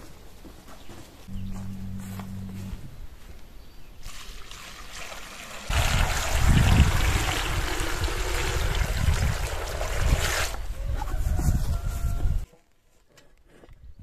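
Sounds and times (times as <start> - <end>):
water pouring into metal pot: 4.0 - 10.6.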